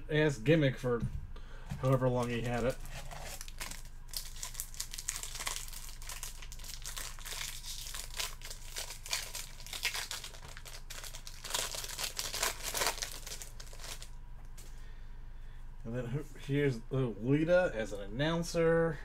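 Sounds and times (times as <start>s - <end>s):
plastic wrapper crinkling: 1.8s - 14.2s.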